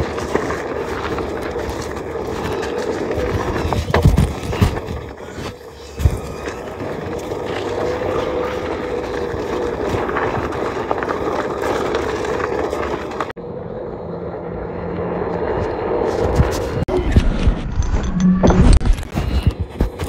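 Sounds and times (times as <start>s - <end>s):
drone propellers humming: 5.0s - 18.7s.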